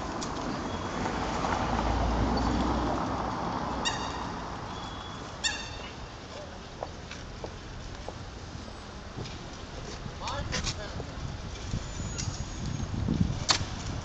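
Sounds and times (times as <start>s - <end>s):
outdoor traffic noise: 0.0s - 14.0s
sharp high-pitched calls: 3.8s - 6.0s.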